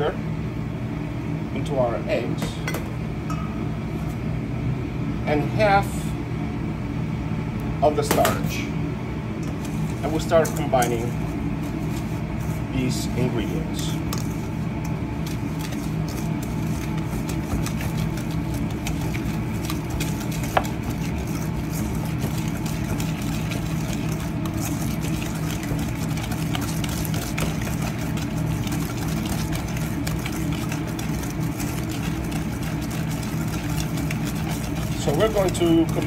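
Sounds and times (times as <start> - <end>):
kitchen machine hum: 0.0 - 36.0
whisk clicking in metal bowl: 14.1 - 36.0.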